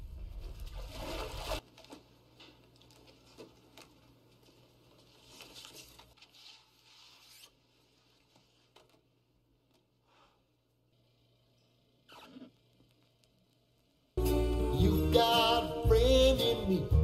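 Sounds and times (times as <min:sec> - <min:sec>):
record sleeves rustling: 0:00.8 - 0:09.1.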